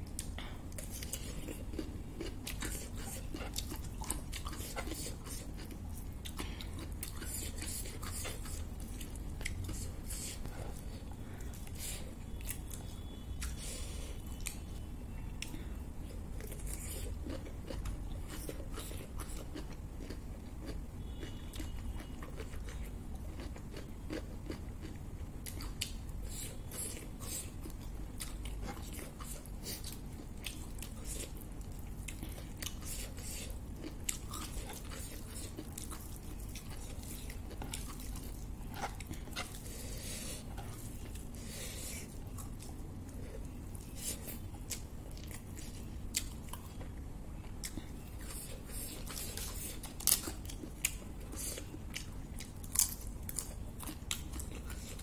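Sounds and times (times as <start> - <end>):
chewing crisp food: 0.0 - 55.0
low steady hum: 0.0 - 55.0
crackles of crumbling crisp food: 16.1 - 39.8, 40.4 - 55.0.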